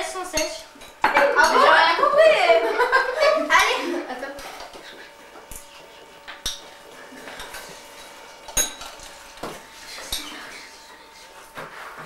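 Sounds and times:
cutlery clinking on china: 8.5s - 9.0s.

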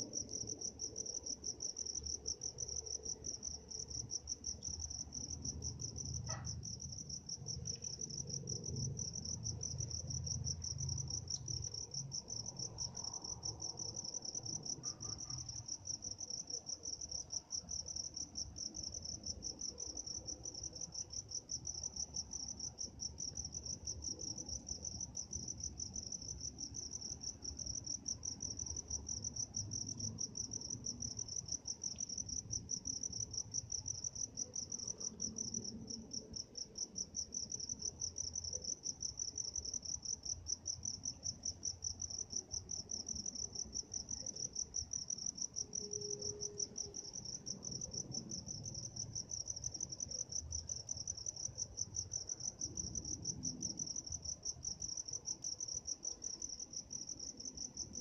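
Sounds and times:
crickets trilling: 0.2s - 58.0s.

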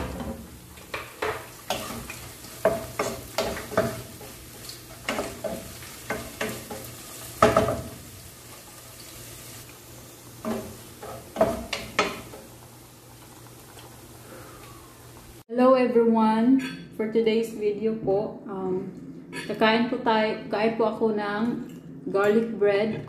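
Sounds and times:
faint sizzle of frying: 0.0s - 15.5s
steady low hum: 16.0s - 23.0s.

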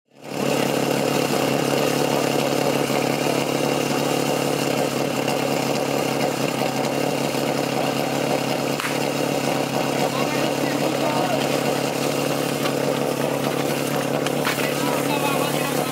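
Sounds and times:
pump engine idling: 0.1s - 15.9s.

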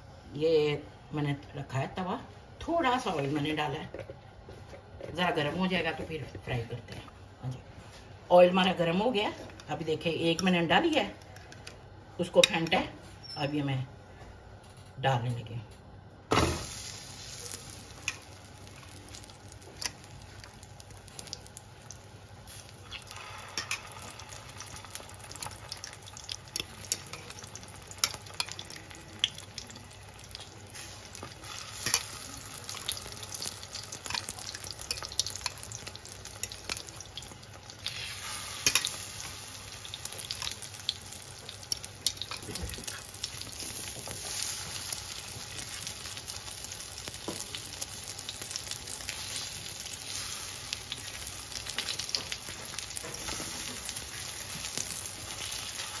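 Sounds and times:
food sizzling in hot oil: 16.3s - 56.0s.

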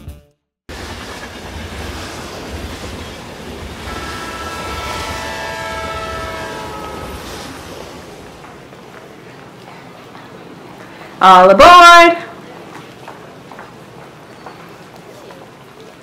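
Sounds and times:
train rumbling past: 0.7s - 11.4s
multi-note train horn: 3.8s - 8.2s.

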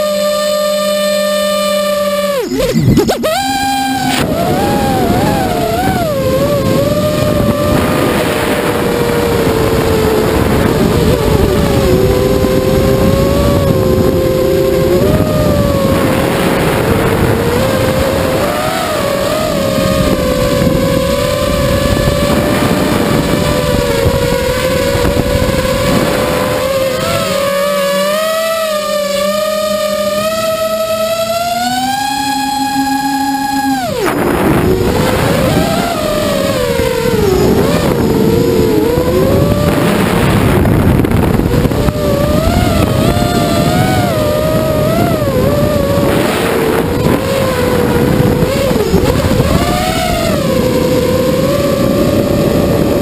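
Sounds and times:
drone motors whining: 0.0s - 53.0s
low rushing noise: 32.9s - 53.0s.

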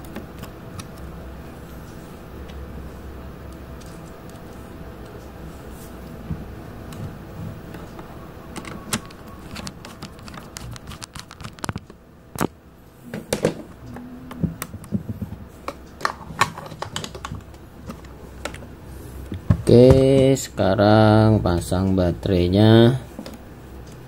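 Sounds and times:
plastic case and switches handled: 8.6s - 11.9s.

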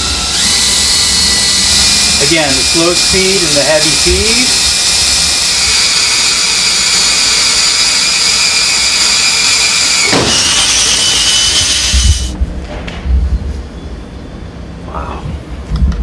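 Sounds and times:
electric drill drilling into steel: 0.0s - 12.4s
low thumps: 10.0s - 13.6s.

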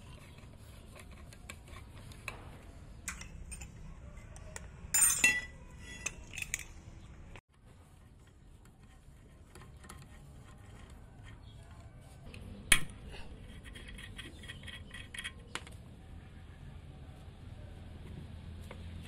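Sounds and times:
hand tools clinking on metal: 4.9s - 6.8s.

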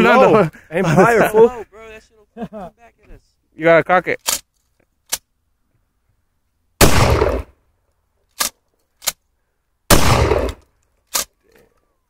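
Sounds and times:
shotgun shots: 6.8s - 7.5s, 9.9s - 10.6s.

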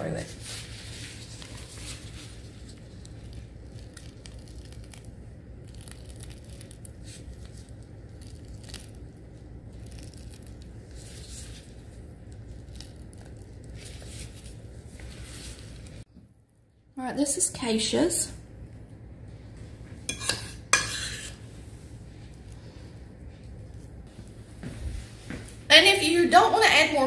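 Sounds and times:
piping bag crackling: 0.0s - 16.7s, 20.6s - 24.4s
steady low hum: 0.0s - 27.0s.

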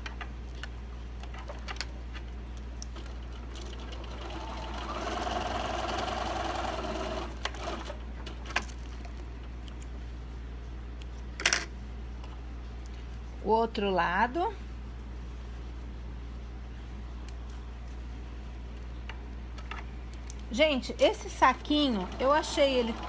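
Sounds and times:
sewing machine stitching: 3.5s - 8.0s, 21.6s - 23.0s.

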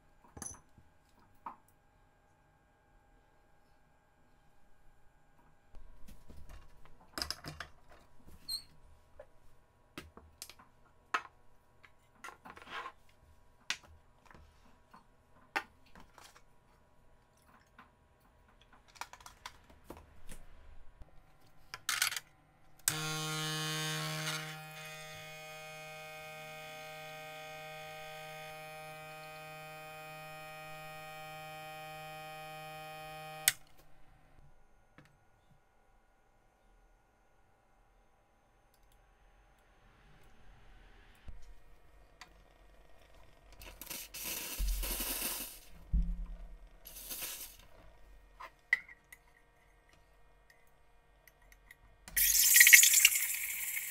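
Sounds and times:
espresso machine pump buzzing: 24.2s - 33.6s, 52.2s - 53.9s
cups and pitcher clicking: 52.2s - 53.9s.

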